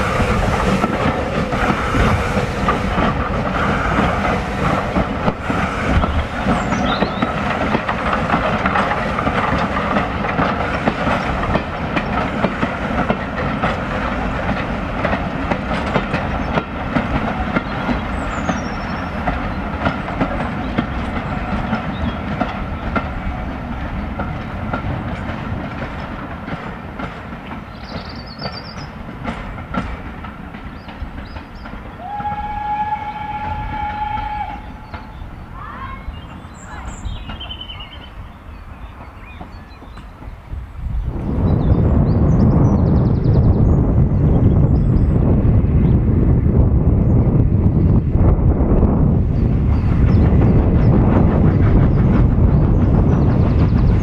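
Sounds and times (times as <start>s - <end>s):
birds chirping: 0.0s - 12.8s, 15.9s - 25.4s, 26.0s - 45.2s
train wheels clattering over rail joints: 0.0s - 41.0s, 48.8s - 54.0s
steam whistle: 32.0s - 34.8s.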